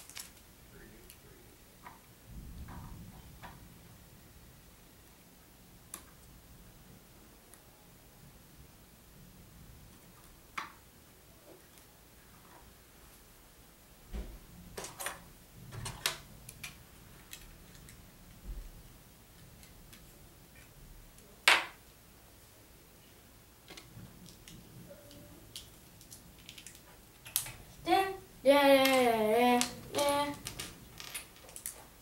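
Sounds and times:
plastic bricks clicking together: 0:25.5 - 0:27.6, 0:29.6 - 0:31.8.

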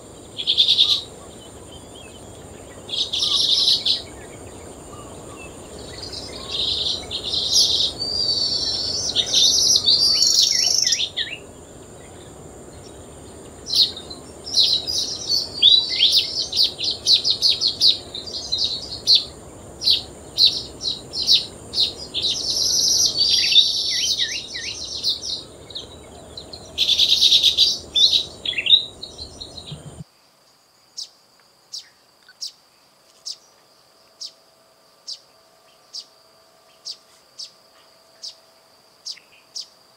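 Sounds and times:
birds chattering: 0:00.0 - 0:30.0
high-pitched insect drone: 0:00.0 - 0:30.1, 0:31.7 - 0:39.9.

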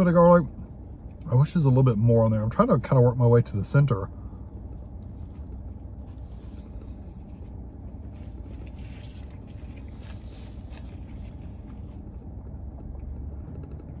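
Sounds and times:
car cabin hum: 0:00.0 - 0:14.0.

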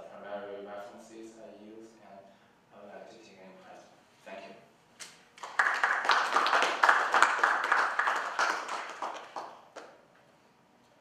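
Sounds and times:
audience clapping: 0:05.4 - 0:10.0.

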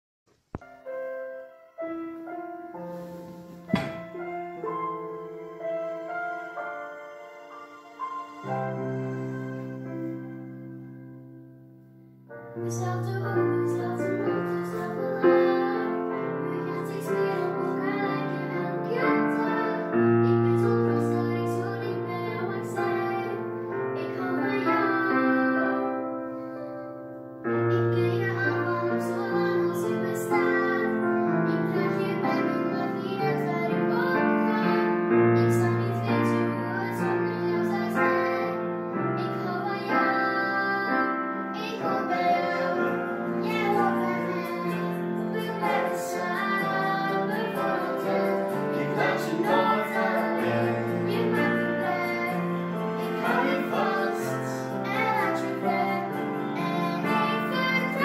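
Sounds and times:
piano accompaniment: 0:00.5 - 0:58.0
girl singing: 0:12.5 - 0:58.0.

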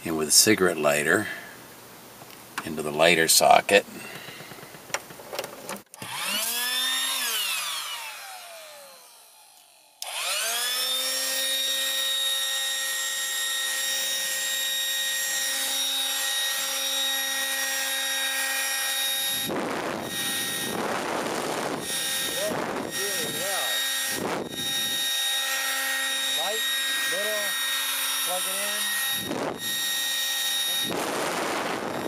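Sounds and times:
electric inflator pump whining: 0:04.0 - 0:32.0
bursts of rushing noise: 0:30.8 - 0:32.0.

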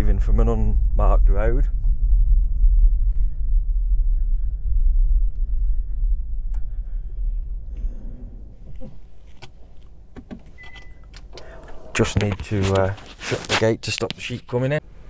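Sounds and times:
car engine rumble: 0:00.0 - 0:13.2
clicks: 0:08.7 - 0:13.0.

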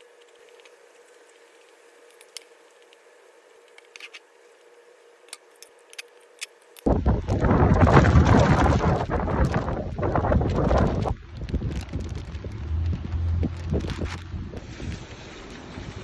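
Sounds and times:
faint room hum: 0:00.0 - 0:15.0
wind rushing on microphone: 0:06.9 - 0:16.0.

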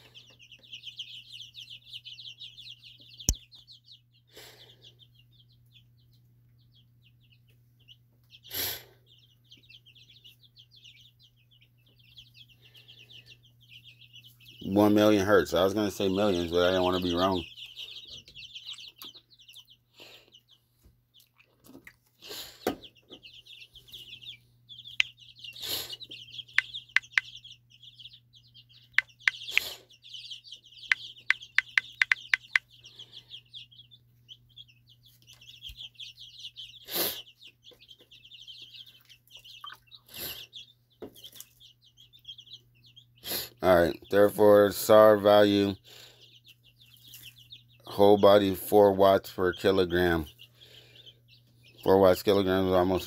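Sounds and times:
birds calling: 0:00.0 - 0:53.0
phone keyboard taps: 0:31.6 - 0:32.6.

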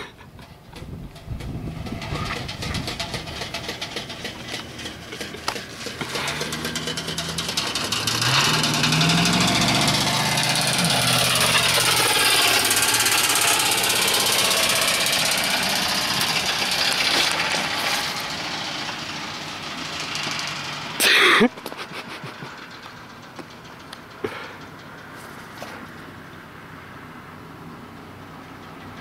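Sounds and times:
rapid clatter under truck: 0:00.0 - 0:26.7, 0:27.8 - 0:29.0
pickup truck engine: 0:00.0 - 0:29.0
loud burst with falling pitch: 0:06.0 - 0:20.6.

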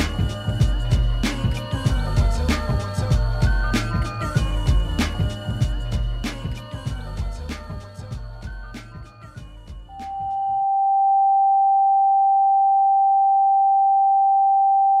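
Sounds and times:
hip-hop beat: 0:00.0 - 0:10.6.

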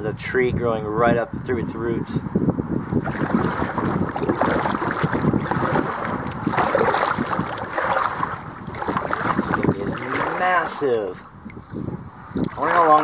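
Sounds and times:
wind buffeting microphone: 0:00.0 - 0:13.0
water lapping around a canoe: 0:02.9 - 0:11.0, 0:12.3 - 0:13.0.

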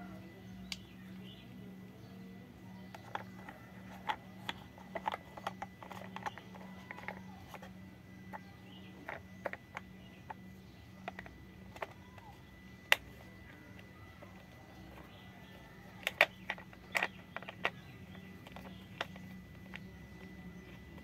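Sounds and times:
steady low hum: 0:00.0 - 0:21.0
plastic toy parts clicking: 0:02.8 - 0:08.4, 0:09.0 - 0:10.4, 0:11.0 - 0:21.0.

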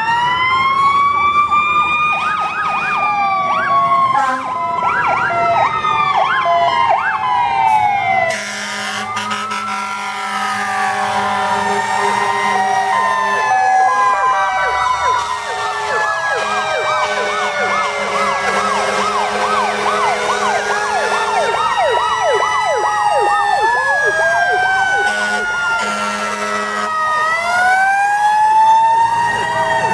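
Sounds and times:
fire engine sirens wailing: 0:00.0 - 0:29.9
siren fast whooping yelp: 0:11.5 - 0:29.9.

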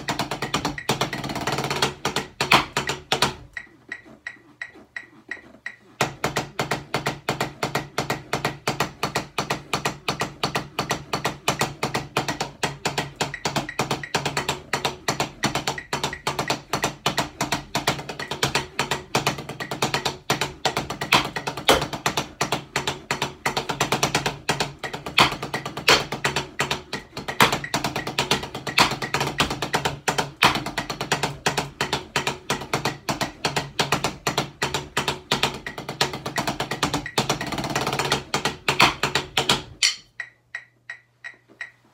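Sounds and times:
drumsticks tapping practice pads: 0:00.0 - 0:41.9.

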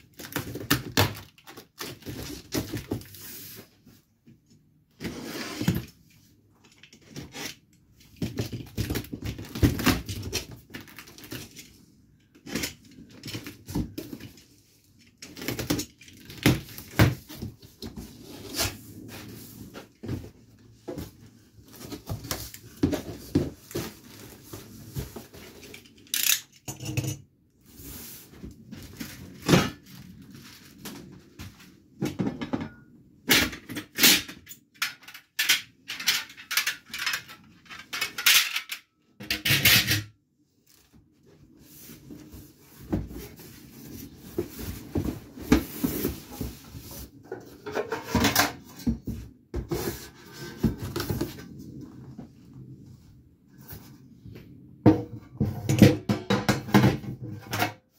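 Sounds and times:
knocks and clatter of parts: 0:19.8 - 0:27.3, 0:31.4 - 0:40.1, 0:54.9 - 0:57.8.

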